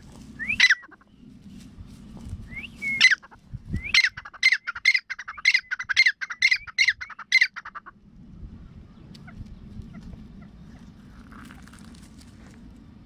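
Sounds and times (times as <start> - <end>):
francolin calling: 0.4 - 1.2, 2.5 - 7.8.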